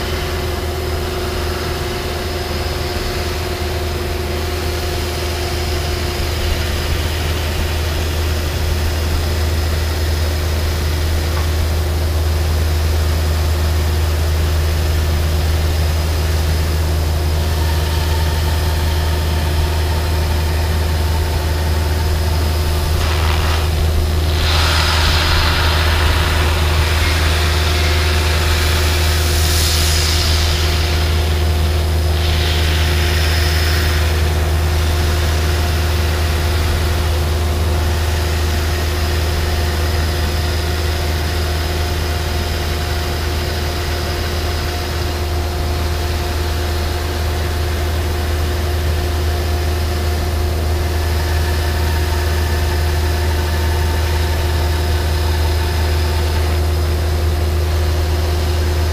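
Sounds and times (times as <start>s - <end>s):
low machine hum: 0.0s - 58.9s
wire hissing through foam: 22.0s - 36.0s.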